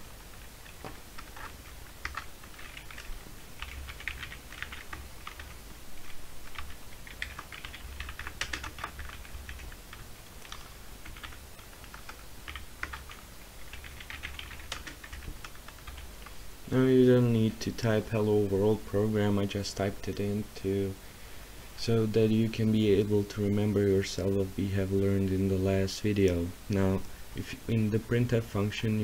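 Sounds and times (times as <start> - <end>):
keyboard keys clicking: 6.6 - 16.1.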